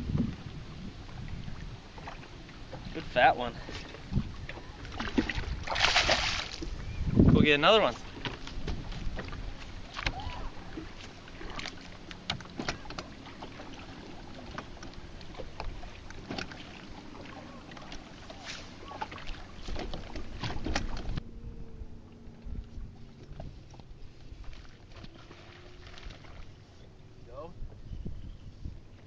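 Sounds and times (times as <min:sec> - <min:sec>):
wind on microphone: 0:00.0 - 0:03.0, 0:03.6 - 0:11.6, 0:19.6 - 0:24.5, 0:27.4 - 0:29.0
waves slapping boat hull: 0:00.0 - 0:21.4, 0:22.0 - 0:27.9
splashes: 0:01.9 - 0:06.8, 0:07.9 - 0:21.2, 0:23.2 - 0:26.7.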